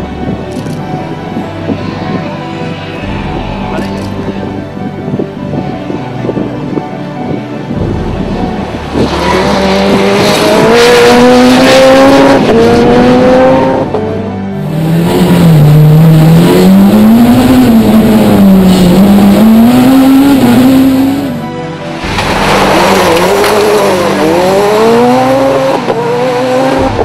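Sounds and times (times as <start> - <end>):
rally car engine at full throttle: 0.0 - 27.0.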